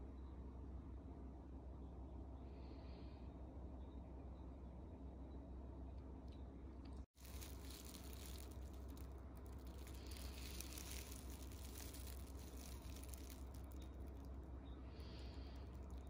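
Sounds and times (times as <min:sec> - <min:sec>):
low steady hum: 0:00.0 - 0:16.0
plastic bag crinkling: 0:07.1 - 0:14.4, 0:15.1 - 0:16.0.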